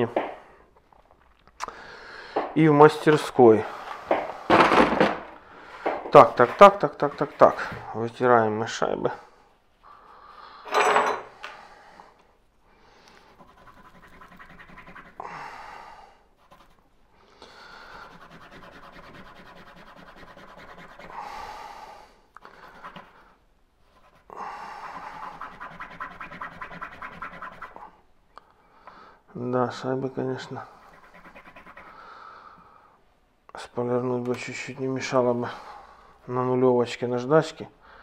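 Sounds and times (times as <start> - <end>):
rubbing and scratching of washers: 5.8 - 7.9, 13.2 - 15.3, 17.9 - 21.2, 22.4 - 28.0, 30.4 - 32.0.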